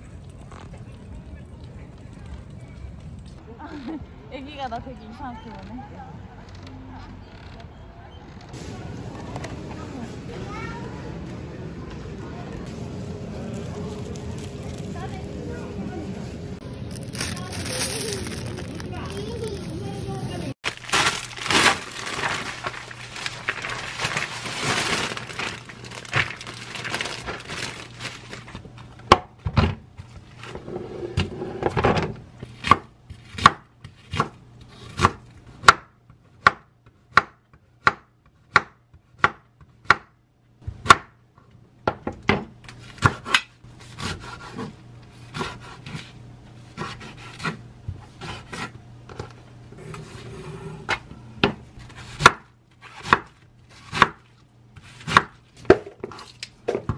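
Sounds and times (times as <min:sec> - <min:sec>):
plastic bag rustling: 0:16.2 - 0:28.6
knife chopping on wooden board: 0:45.3 - 0:46.1, 0:46.8 - 0:48.7, 0:51.4 - 0:54.2, 0:54.8 - 0:55.8.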